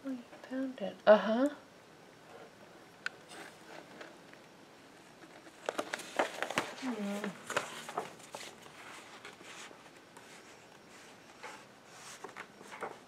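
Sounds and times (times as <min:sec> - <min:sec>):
magazine pages rustling: 0:05.1 - 0:13.0.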